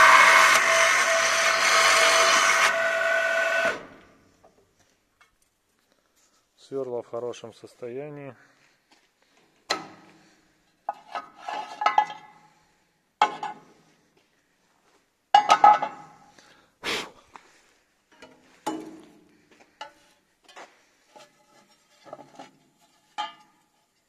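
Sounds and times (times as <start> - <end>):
metal clanks and clinks: 10.9 - 12.4, 15.4 - 16.1, 21.2 - 23.8.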